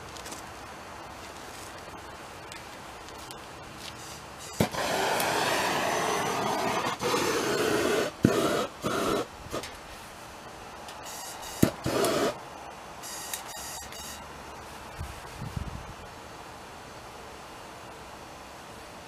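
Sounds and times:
propane torch hissing: 4.0s - 10.3s, 11.0s - 12.4s.

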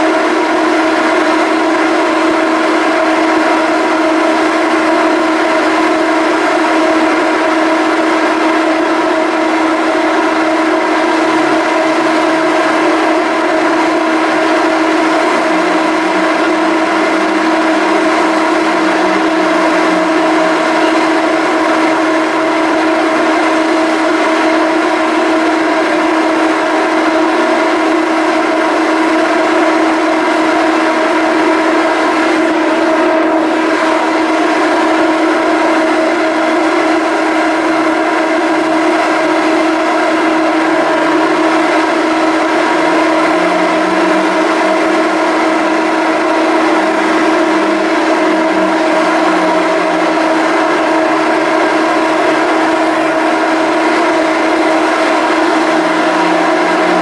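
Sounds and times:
ship engines droning hum: 0.0s - 57.0s
low tone: 10.0s - 26.0s, 39.4s - 57.0s.

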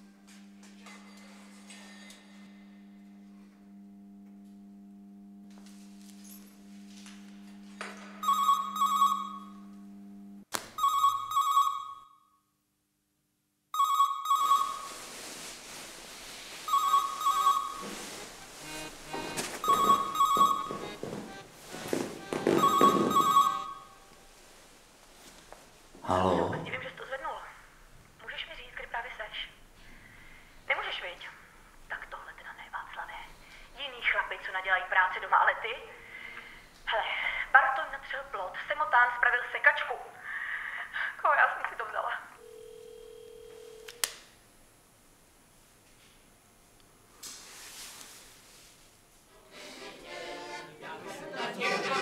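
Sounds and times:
telephone trilling ring: 8.2s - 9.7s, 10.8s - 12.2s, 13.8s - 15.0s, 16.7s - 24.1s, 42.4s - 44.0s
rustling movement: 14.4s - 26.0s
sustained music chord: 17.9s - 20.0s.

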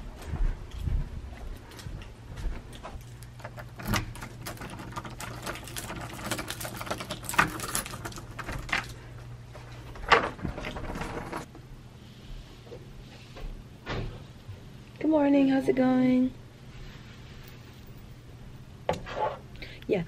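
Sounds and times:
steady low hum: 0.0s - 20.0s
keys jingling in a door lock: 3.0s - 8.9s.

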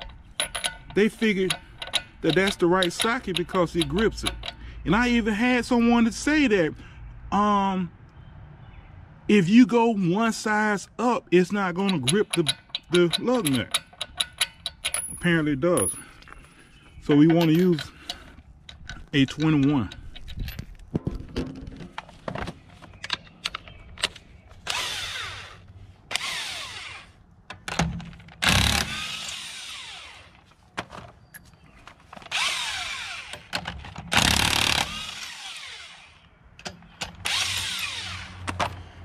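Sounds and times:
socket clicking onto nuts: 0.0s - 4.7s, 11.8s - 15.2s
impact wrench spinning: 0.3s - 4.6s.

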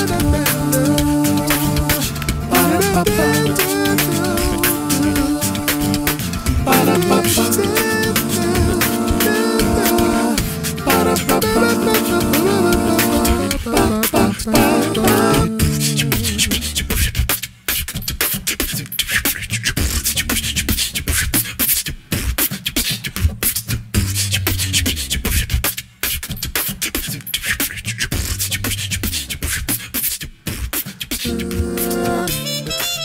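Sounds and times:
wavering vocal melody: 0.0s - 16.7s, 31.2s - 33.0s
beatbox vocal percussion: 0.0s - 33.0s
low bass line: 6.5s - 16.9s.

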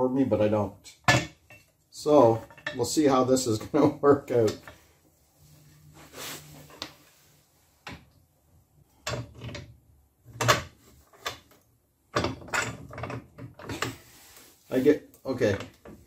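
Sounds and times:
metal plates and bolts clunking: 1.0s - 1.7s, 2.4s - 2.9s, 8.9s - 11.5s, 12.1s - 14.0s.

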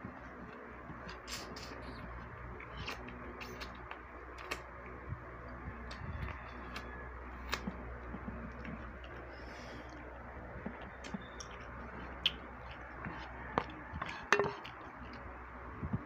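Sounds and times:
low room hum: 0.0s - 16.0s
people eating by hand: 0.0s - 16.0s
mouth smacks and clicks: 10.6s - 15.2s.

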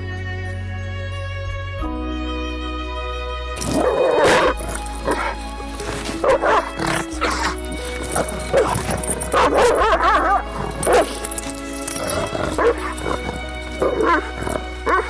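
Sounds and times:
background music: 0.0s - 15.0s
dogs barking and yipping: 3.6s - 15.0s.

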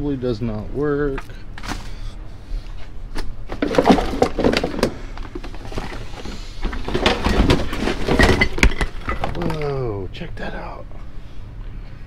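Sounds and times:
items knocking in a dumpster: 3.5s - 9.6s.

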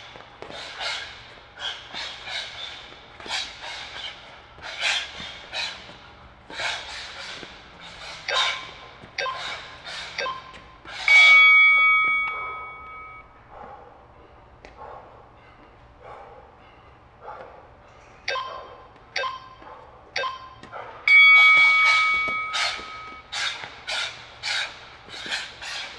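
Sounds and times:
heavy breathing: 0.0s - 11.4s, 14.0s - 18.1s, 21.8s - 25.9s
timer ring: 10.2s - 13.3s, 18.3s - 19.6s, 20.2s - 23.3s
short timer beeps: 19.2s - 19.5s.

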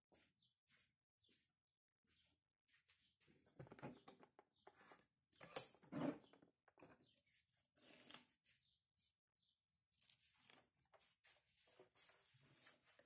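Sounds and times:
paper rustling: 9.8s - 13.0s.

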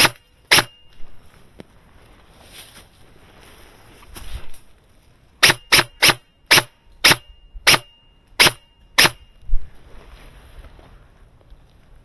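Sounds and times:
airsoft rifle shots: 0.0s - 0.8s, 5.4s - 9.3s.

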